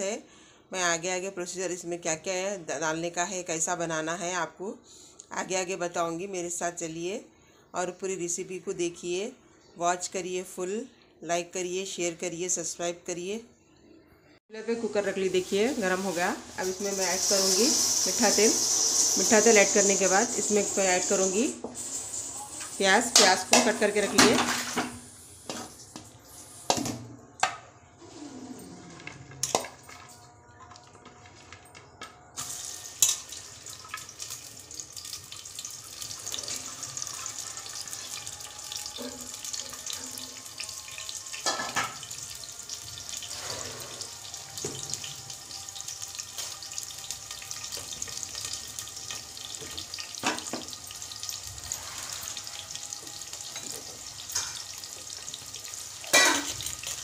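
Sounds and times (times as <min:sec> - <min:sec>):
onions sizzling in hot oil: 0:15.1 - 0:26.8, 0:32.4 - 0:57.0.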